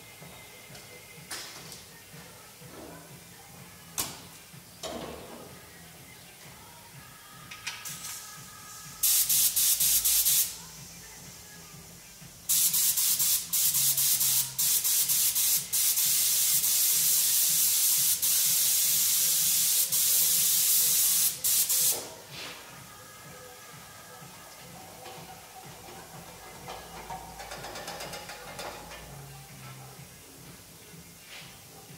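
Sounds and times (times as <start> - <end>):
paint spray gun hissing: 9.0 - 10.7, 12.5 - 22.1.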